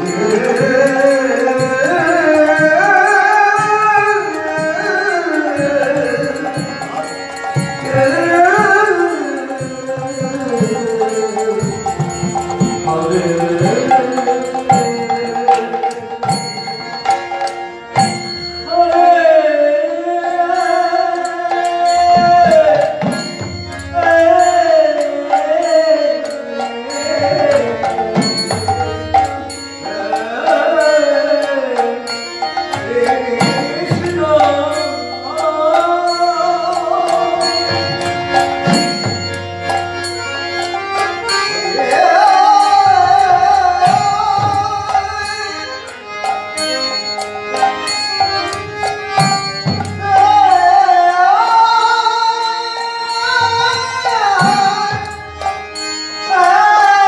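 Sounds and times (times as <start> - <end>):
high ticking beat: 0.0 - 19.4
man singing: 0.0 - 39.8, 40.6 - 46.5, 47.5 - 57.0
harmonium: 0.0 - 57.0.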